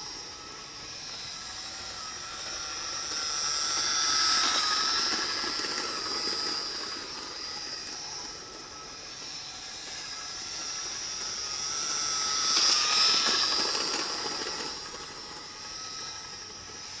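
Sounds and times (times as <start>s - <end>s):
model train motor whine: 0.0s - 17.0s.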